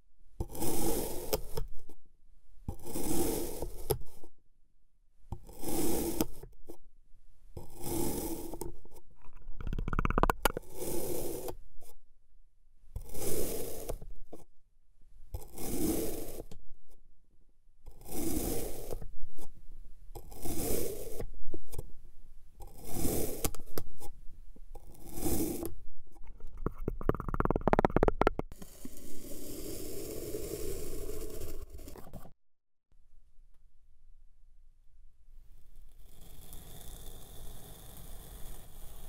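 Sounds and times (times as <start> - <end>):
plastic knife cutting sand: 0.4 - 2.0, 2.7 - 4.3, 5.4 - 6.8, 7.6 - 12.0, 12.9 - 14.4, 15.3 - 17.0, 17.8 - 21.9, 22.6 - 32.4, 36.0 - 39.0.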